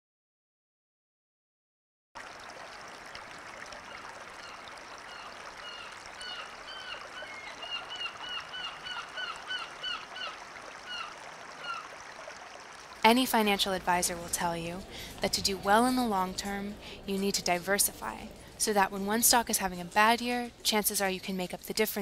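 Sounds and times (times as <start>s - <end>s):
stream water running: 2.2s - 22.0s
bird calling rapidly: 3.8s - 12.0s.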